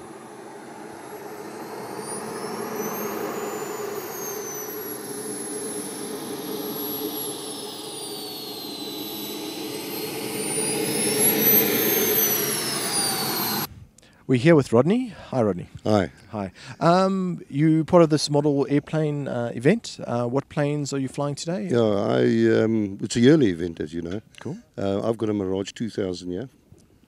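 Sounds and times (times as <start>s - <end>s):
model jet turbine whining: 0.0s - 13.7s.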